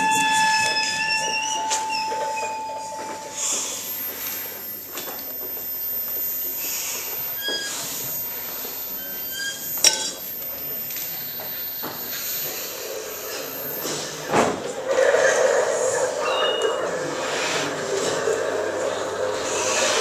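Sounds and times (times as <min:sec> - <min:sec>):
short squealing tones: 0:00.0 - 0:14.3
high steady whistle: 0:00.0 - 0:14.9
hissing electronic noise: 0:00.0 - 0:16.3.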